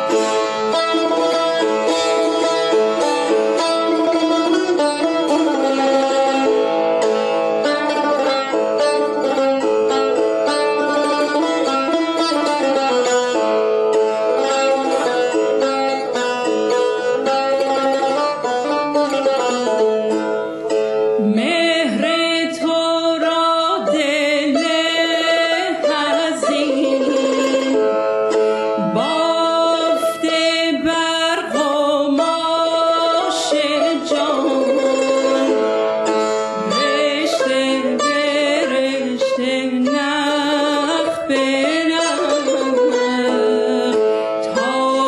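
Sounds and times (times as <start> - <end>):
plucked lute accompaniment: 0.0 - 45.0
woman singing ornamented vocals: 21.2 - 27.9, 28.8 - 35.6, 36.6 - 45.0.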